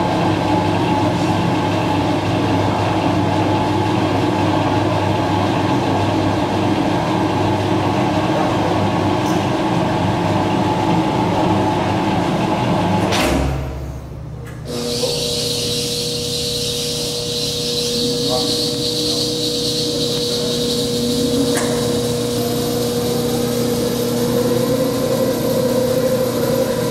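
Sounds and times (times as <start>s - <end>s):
electric motor and gearbox rumbling: 14.6s - 26.9s.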